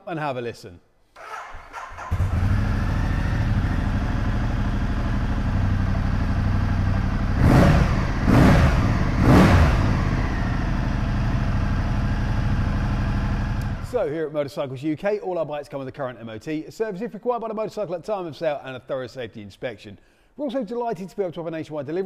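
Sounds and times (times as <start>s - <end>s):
motorcycle engine revving: 1.2s - 14.0s
motorcycle engine idling: 1.7s - 14.0s.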